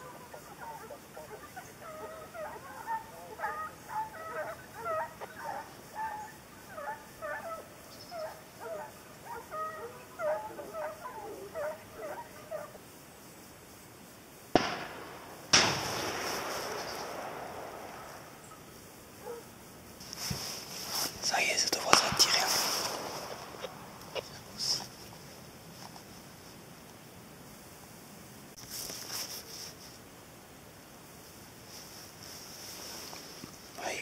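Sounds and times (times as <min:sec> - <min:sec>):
distant hounds baying: 0:00.0 - 0:12.8, 0:14.6 - 0:19.6, 0:21.6 - 0:25.2
sharp cracks: 0:14.5 - 0:18.6, 0:21.0 - 0:25.0.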